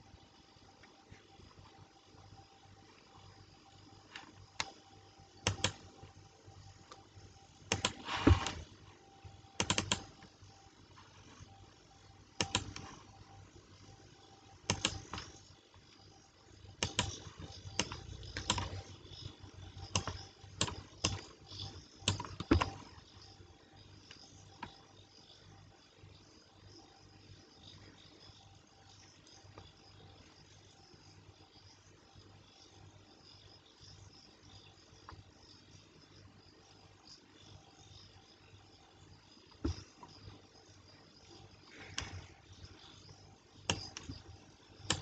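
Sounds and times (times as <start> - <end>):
keyboard typing: 4.1 - 6.1, 6.7 - 8.8, 9.5 - 10.4, 12.3 - 13.2, 14.6 - 15.5, 16.7 - 23.0, 43.6 - 45.0.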